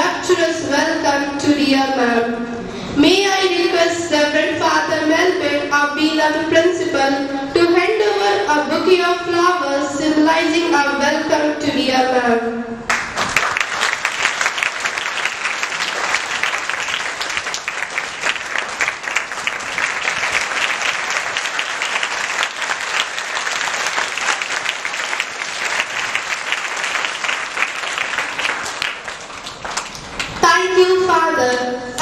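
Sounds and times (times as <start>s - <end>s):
audience applause: 12.9s - 30.4s.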